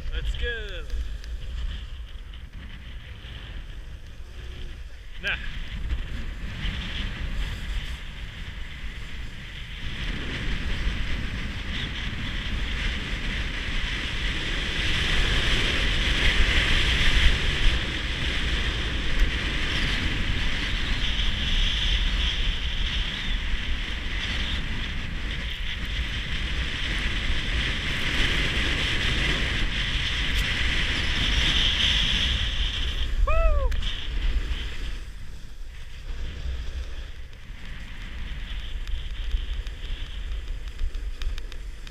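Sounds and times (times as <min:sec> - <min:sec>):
wind buffeting microphone: 0:00.0 - 0:41.9
skis sliding on hard snow: 0:00.8 - 0:09.4, 0:34.0 - 0:41.9.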